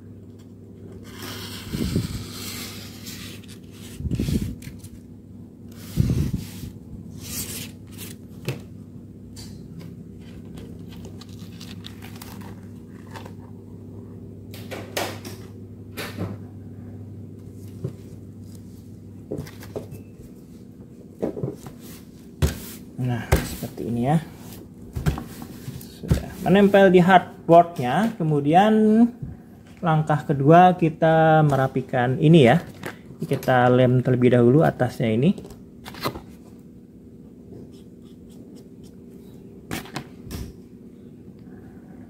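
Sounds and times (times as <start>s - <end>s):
steady low hum: 0.0s - 42.0s
paper rustling: 10.2s - 13.4s.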